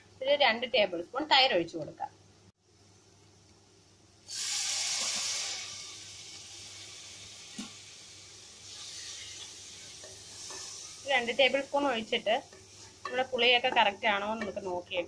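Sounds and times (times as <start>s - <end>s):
food sizzling in hot oil: 4.2s - 15.0s.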